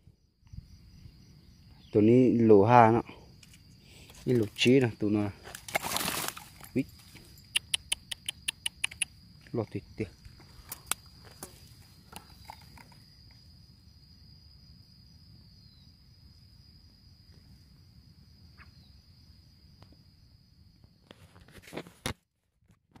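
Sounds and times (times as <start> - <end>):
high-pitched insect trill: 0.0 - 21.5
scattered clicks: 7.1 - 9.2.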